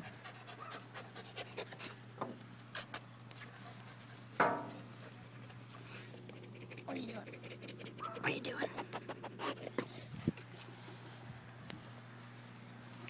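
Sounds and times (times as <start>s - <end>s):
dog panting: 0.0s - 2.0s, 5.1s - 10.4s.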